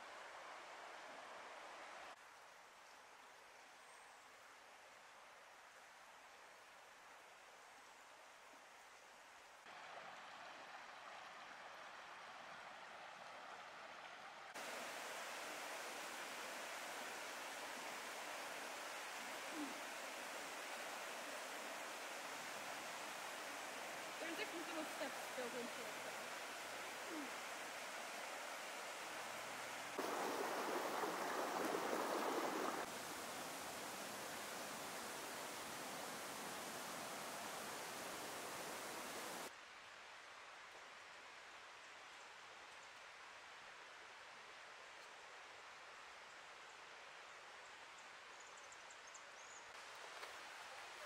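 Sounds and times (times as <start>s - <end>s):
river water rushing: 9.7s - 39.5s.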